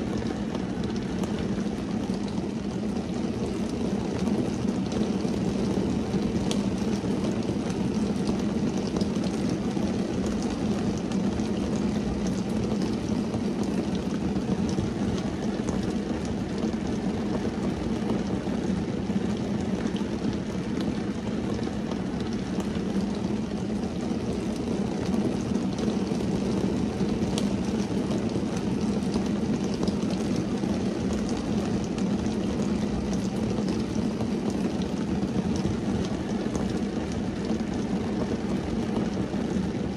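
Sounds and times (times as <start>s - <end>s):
rain on a car roof: 0.0s - 39.9s.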